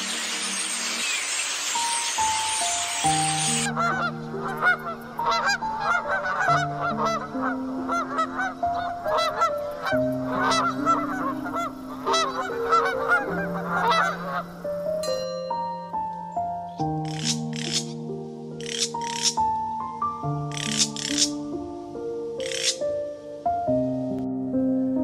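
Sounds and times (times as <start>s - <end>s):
waterfowl honking: 0.0s - 14.9s, 17.0s - 18.0s, 18.6s - 19.4s, 20.5s - 21.4s, 22.4s - 22.8s
soft background music: 0.0s - 25.0s.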